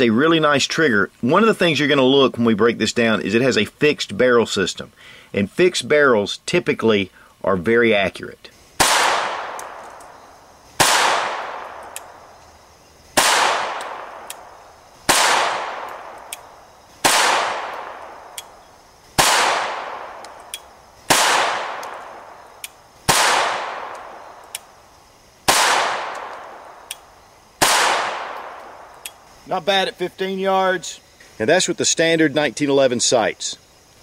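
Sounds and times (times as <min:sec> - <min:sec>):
pistol shots with echo: 0:08.8 - 0:10.2, 0:10.8 - 0:12.2, 0:13.2 - 0:18.6, 0:19.2 - 0:20.5, 0:21.1 - 0:22.5, 0:23.1 - 0:24.7, 0:25.5 - 0:29.2
faint small tick: 0:11.8 - 0:12.1, 0:16.2 - 0:16.5.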